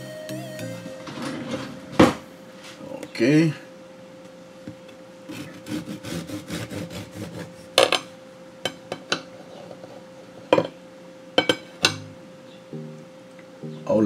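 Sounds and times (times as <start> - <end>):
knife sawing through bread: 5.3 - 7.8.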